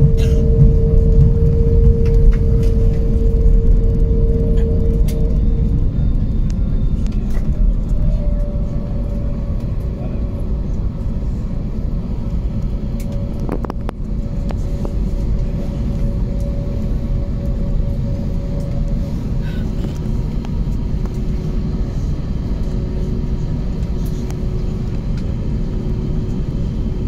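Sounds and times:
higher steady tone: 0:00.0 - 0:11.9
aircraft cabin rumble: 0:00.0 - 0:27.0
steady engine tone: 0:00.0 - 0:27.0.

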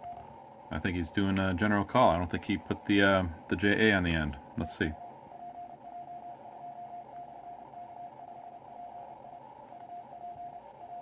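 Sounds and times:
radio band hiss: 0:00.7 - 0:05.0.

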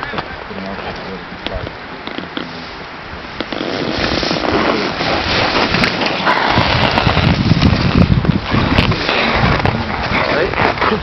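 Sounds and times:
ski edges scraping snow: 0:03.5 - 0:11.0.

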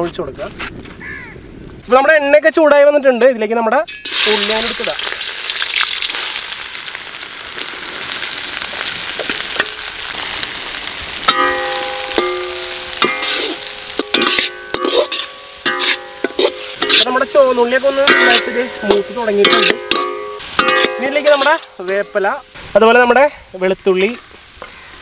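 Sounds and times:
shallots sizzling in hot oil: 0:04.0 - 0:25.0
ladle clinking and scraping pan: 0:11.3 - 0:17.2, 0:18.0 - 0:22.2.

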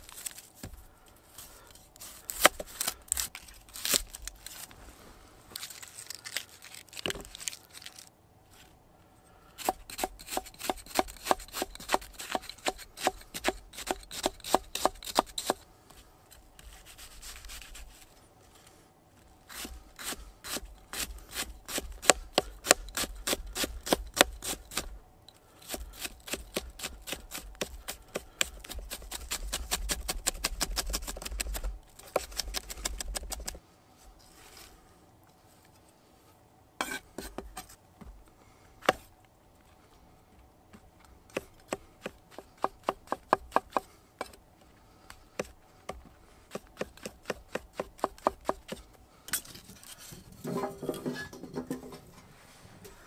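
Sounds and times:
knife chopping on wooden board: 0:41.3 - 0:44.4, 0:45.4 - 0:48.8.

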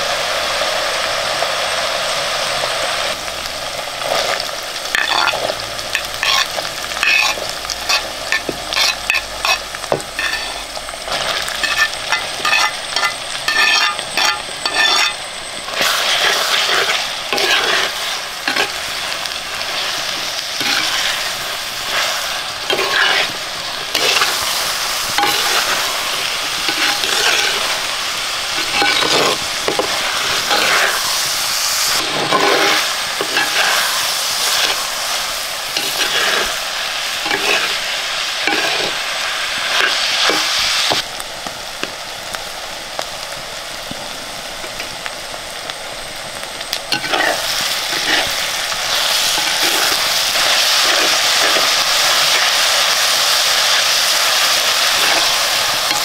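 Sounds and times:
food sizzling in hot oil: 0:00.0 - 0:56.0
spoon scraping a pan: 0:04.1 - 0:31.2, 0:31.9 - 0:41.0, 0:46.9 - 0:52.7, 0:54.7 - 0:56.0.

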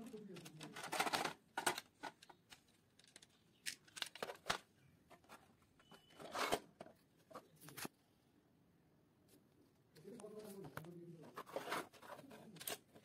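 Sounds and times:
plastic scraping rustle: 0:00.0 - 0:02.4, 0:03.9 - 0:07.9, 0:10.4 - 0:13.0
plastic parts clicking and tapping: 0:00.0 - 0:07.9.

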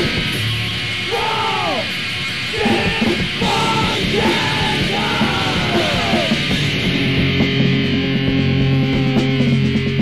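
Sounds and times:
rock band playing: 0:00.0 - 0:10.0
person shouting vocals: 0:01.1 - 0:01.9, 0:02.6 - 0:06.4.

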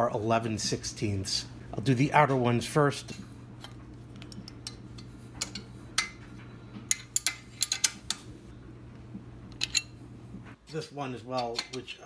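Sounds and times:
faint steady hum: 0:00.0 - 0:12.0
wrenches clinking on metal: 0:11.3 - 0:12.0.

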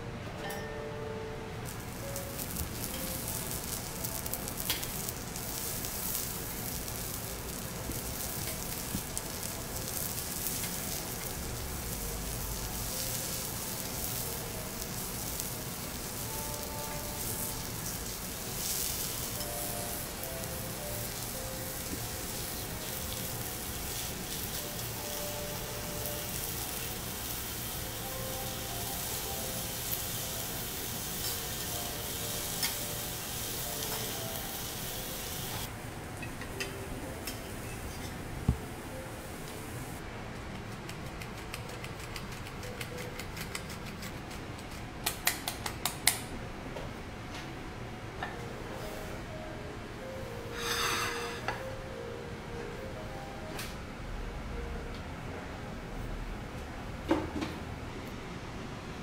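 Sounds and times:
steak sizzling on a griddle: 0:01.7 - 0:35.7, 0:50.6 - 0:51.4.

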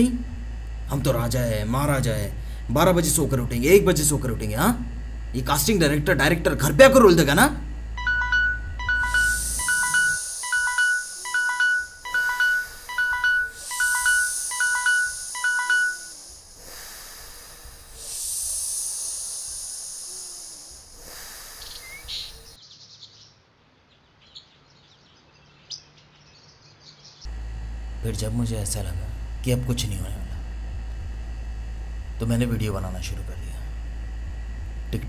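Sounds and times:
electronic alarm beeping: 0:08.0 - 0:16.2
background music with hiss: 0:08.4 - 0:22.0.

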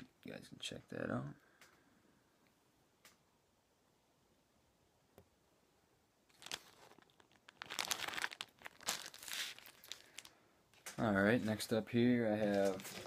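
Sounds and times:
plastic packaging crinkling: 0:06.3 - 0:13.0.

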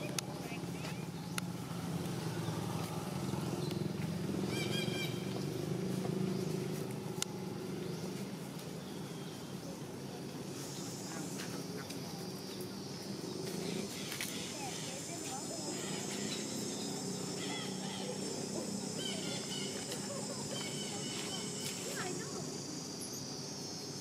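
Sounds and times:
low engine hum: 0:00.0 - 0:23.8
high squeaky calls: 0:04.5 - 0:05.4, 0:13.6 - 0:22.5.

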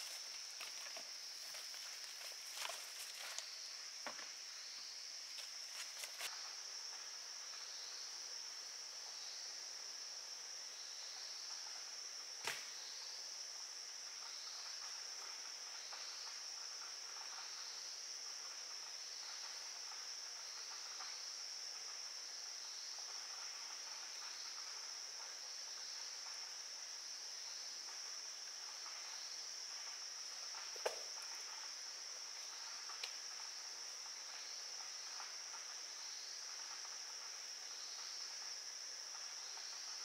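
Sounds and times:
insects droning: 0:00.0 - 0:40.0
sharp click: 0:12.4 - 0:12.7.

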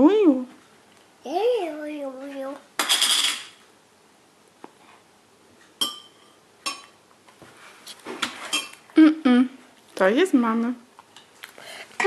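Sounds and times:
spoon clinking on bowl: 0:05.8 - 0:07.0.

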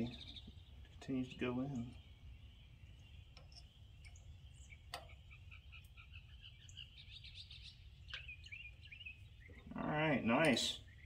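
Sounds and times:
faint bird chirping: 0:00.0 - 0:11.0
light clicks of grease fitting: 0:04.9 - 0:05.2.

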